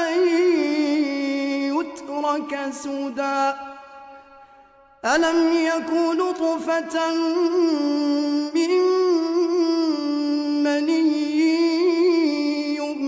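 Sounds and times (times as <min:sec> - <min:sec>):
man chanting: 0:00.0 - 0:13.0
short breaths: 0:03.8 - 0:04.9.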